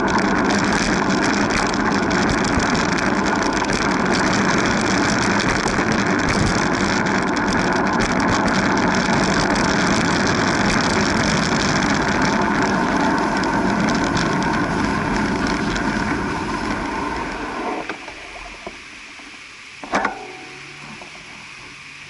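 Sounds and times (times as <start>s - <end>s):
sharp clatter: 0.0s - 16.9s
wind on microphone: 0.0s - 17.9s
bicycle tyre and road noise: 0.0s - 22.0s.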